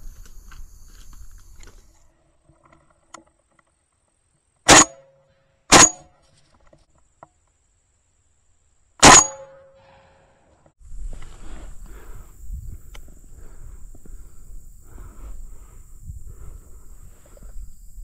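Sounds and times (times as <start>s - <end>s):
shotgun shots with echo: 4.7s - 5.0s, 5.7s - 6.1s, 9.0s - 9.6s.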